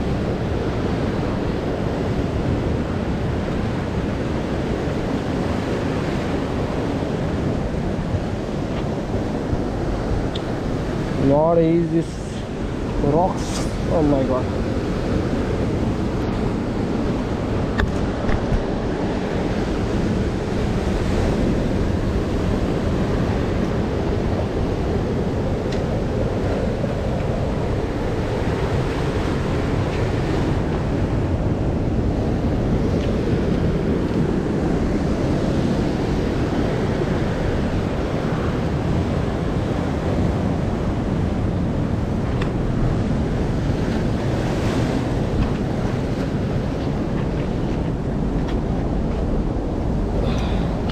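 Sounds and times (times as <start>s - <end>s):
surf on rocky shore: 0.0s - 50.9s
wind on microphone: 0.0s - 50.9s.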